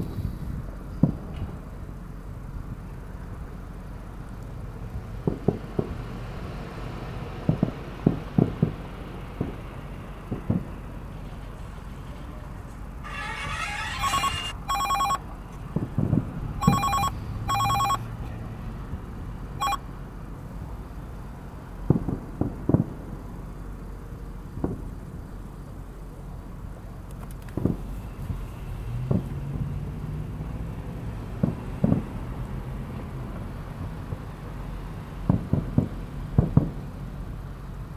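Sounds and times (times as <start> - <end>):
distant fireworks booms: 7.4 - 9.7, 10.3 - 10.8, 21.8 - 23.1, 35.3 - 36.8
phone ringtone: 13.1 - 15.3, 16.6 - 18.1, 19.6 - 19.8.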